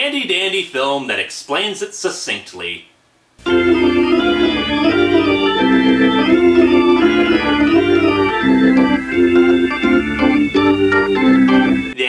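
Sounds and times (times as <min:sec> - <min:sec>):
organ playing held chords: 0:03.4 - 0:12.0.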